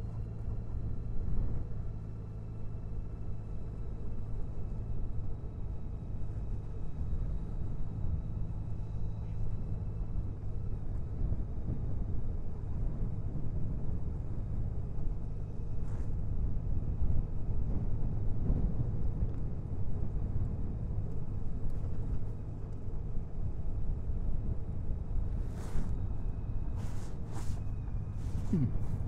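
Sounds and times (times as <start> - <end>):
motorcycle engine rumbling: 25.3 - 29.0.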